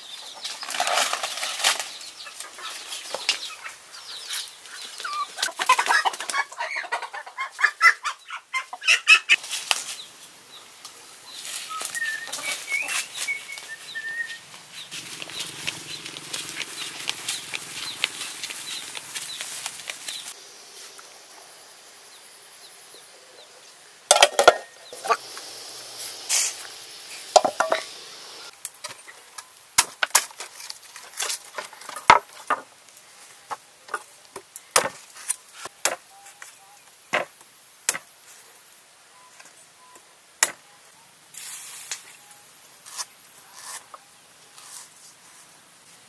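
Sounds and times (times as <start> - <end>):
rustling: 11.3 - 21.0
brief hiss: 25.2 - 28.5, 41.4 - 42.2.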